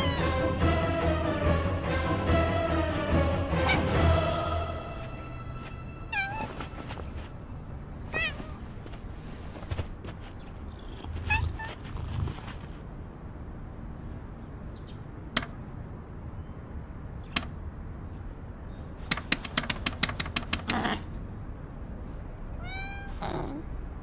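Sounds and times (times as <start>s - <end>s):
scuffling noise: 5.0s - 12.9s
arcade buttons clicking: 19.1s - 20.8s.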